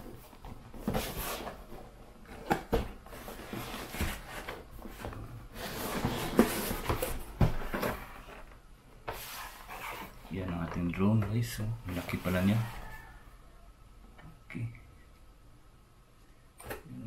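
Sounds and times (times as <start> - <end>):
cardboard rubbing and scraping: 3.1 - 8.5, 9.1 - 10.3, 11.9 - 13.0.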